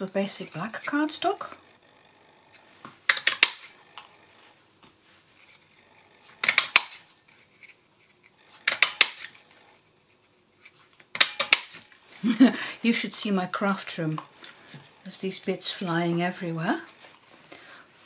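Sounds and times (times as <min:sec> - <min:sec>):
craft punch clicking through card: 0:06.4 - 0:07.0, 0:08.6 - 0:09.4.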